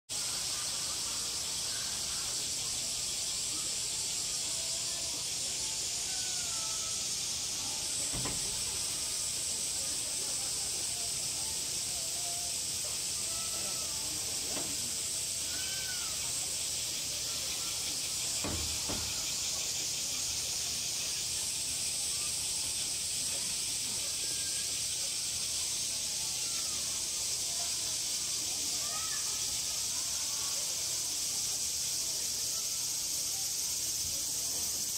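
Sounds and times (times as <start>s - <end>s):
faint bird chirps: 0.1s - 30.6s
high-pitched insect chorus: 0.1s - 34.9s.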